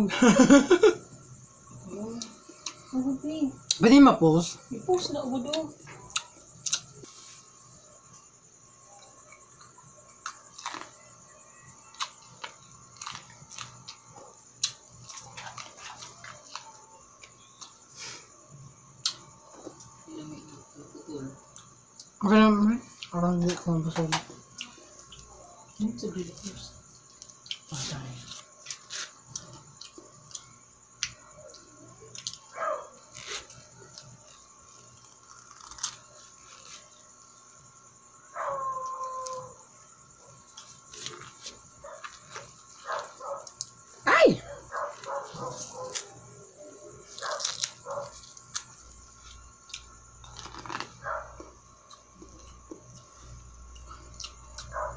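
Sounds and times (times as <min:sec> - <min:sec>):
crunchy bites of corn: 0:06.2 - 0:07.0, 0:10.2 - 0:11.0, 0:11.9 - 0:16.8, 0:32.1 - 0:37.0, 0:47.1 - 0:52.9
chewing: 0:09.0 - 0:11.0, 0:11.9 - 0:14.0, 0:40.5 - 0:43.8, 0:47.1 - 0:54.9
corn husks crackling and rustling: 0:33.0 - 0:37.1, 0:47.1 - 0:49.4, 0:50.2 - 0:51.1.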